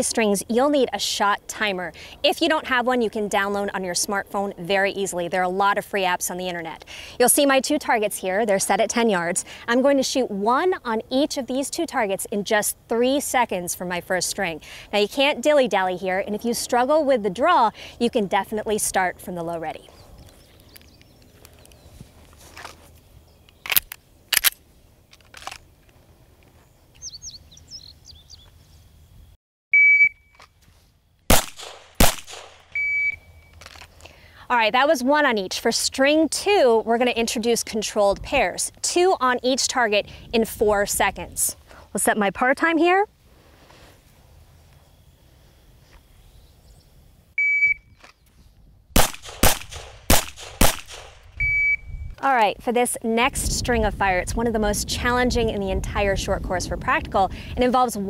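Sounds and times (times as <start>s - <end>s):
birds chirping: 18.4s - 22.2s, 26.6s - 29.0s
sharp cracks: 23.6s - 25.7s, 31.3s - 32.8s, 49.0s - 51.4s
shot timer beep: 29.7s - 30.3s, 32.8s - 33.5s, 47.4s - 47.9s, 51.4s - 51.9s
pistol shots: 31.3s - 32.6s, 49.0s - 51.2s.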